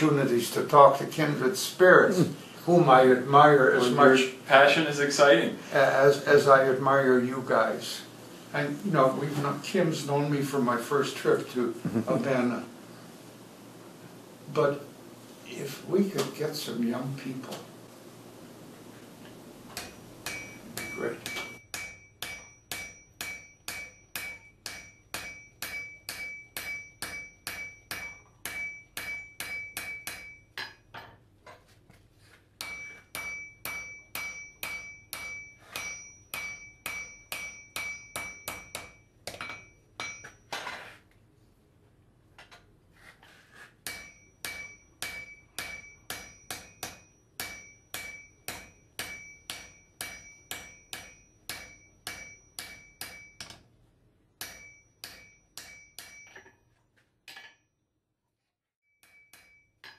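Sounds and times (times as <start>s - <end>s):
hammer striking anvil: 19.8s - 31.2s, 32.6s - 40.6s, 43.8s - 53.7s, 54.4s - 56.6s, 57.3s - 57.7s, 59.0s - 59.9s.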